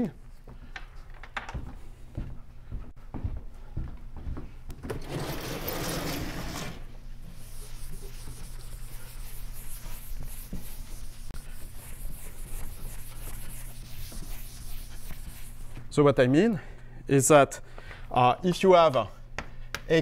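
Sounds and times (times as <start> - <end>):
eraser rubbing on blackboard: 7.3 - 15.8.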